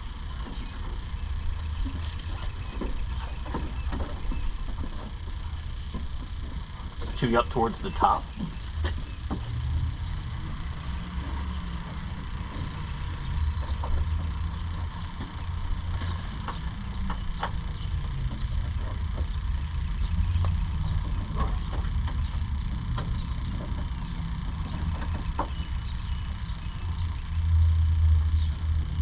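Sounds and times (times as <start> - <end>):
steady low rumble: 0.0 - 29.0.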